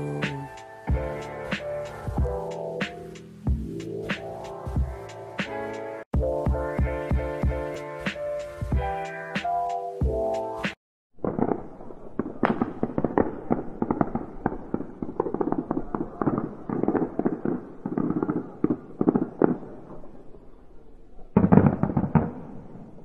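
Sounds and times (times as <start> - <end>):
fireworks bangs and crackling: 11.2 - 20.2, 21.4 - 23.0.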